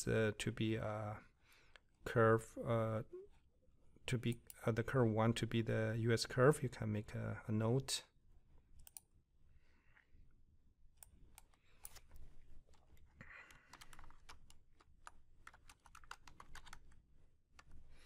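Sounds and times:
typing on a keyboard: 13.4 - 17.0.

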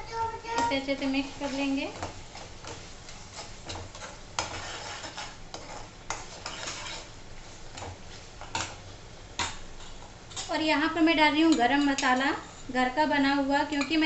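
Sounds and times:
faint sizzle in oil: 0.0 - 14.0
spatula scraping a steel pan: 2.6 - 7.2.

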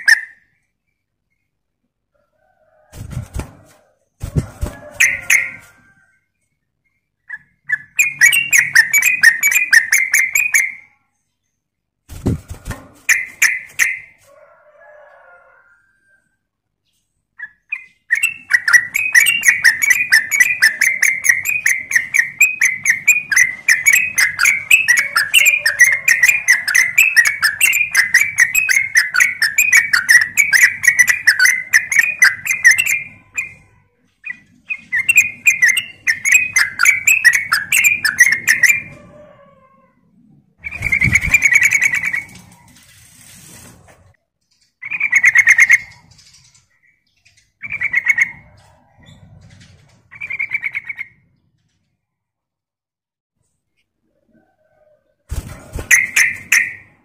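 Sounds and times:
bird singing bubbly chatter: 7.0 - 10.9, 17.4 - 38.9.

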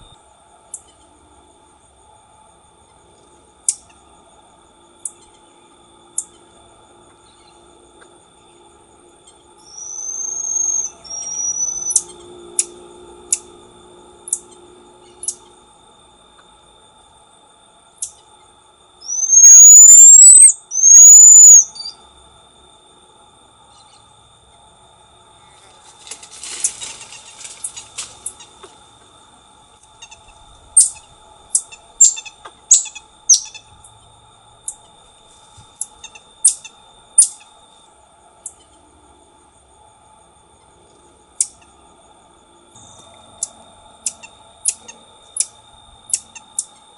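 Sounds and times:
marmoset rising whistles: 9.6 - 12.1, 19.0 - 22.0, 32.0 - 33.6
marmoset short high calls: 9.7 - 12.0, 19.0 - 21.9.

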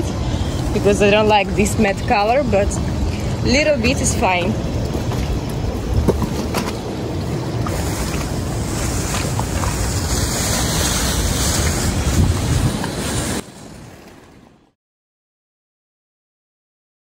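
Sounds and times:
wind buffeting microphone: 0.0 - 14.6.

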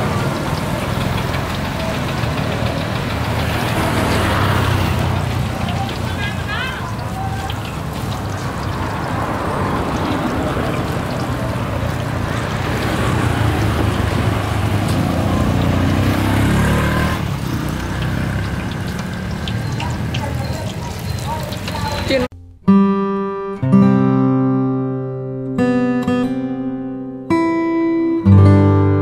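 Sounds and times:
hot oil sizzling in a pan: 0.0 - 22.2
engine running: 0.0 - 22.3.

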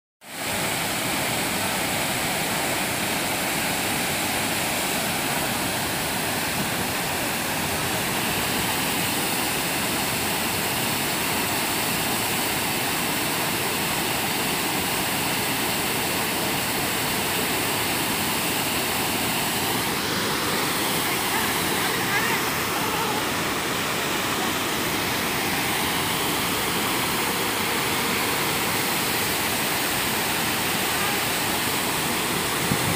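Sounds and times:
waterfall rushing: 0.3 - 32.9.

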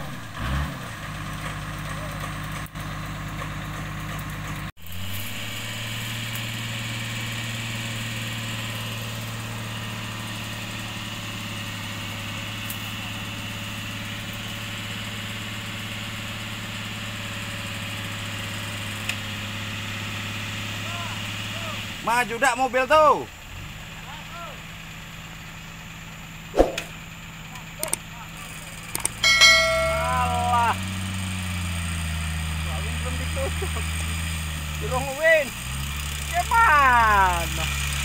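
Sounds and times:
engine idling: 0.0 - 38.0.

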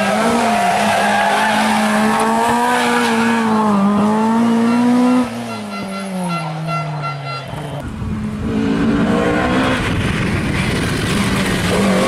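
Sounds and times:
rally car engine at high revs: 0.0 - 12.0.

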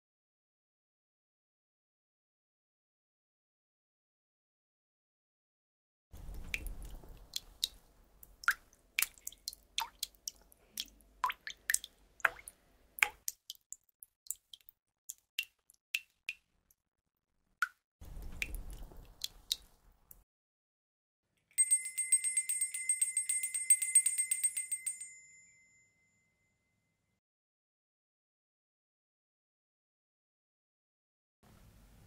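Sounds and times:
water drops plinking into basin: 8.4 - 13.7.

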